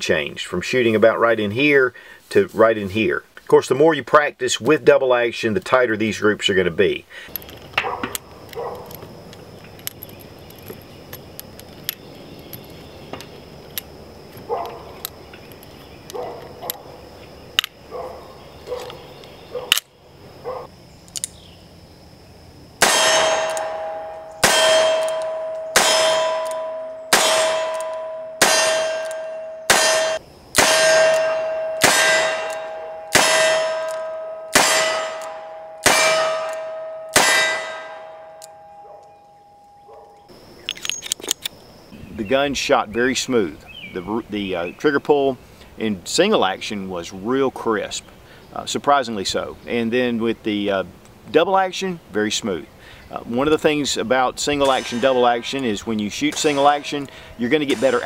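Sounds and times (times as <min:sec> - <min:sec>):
cartridges clicking into revolver: 0:21.1 - 0:21.4, 0:23.4 - 0:23.7, 0:24.9 - 0:26.6, 0:40.6 - 0:41.6
loud gunshots: 0:22.8 - 0:26.4, 0:29.7 - 0:33.9, 0:34.5 - 0:37.9
ringing metal target clang: 0:22.8 - 0:40.0, 0:54.6 - 0:55.6, 0:56.3 - 0:57.1, 0:57.7 - 0:58.0.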